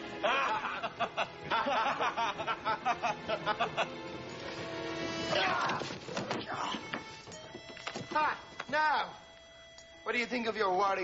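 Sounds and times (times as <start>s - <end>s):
background music: 0.0s - 11.0s
man laughing heartily: 0.2s - 4.0s.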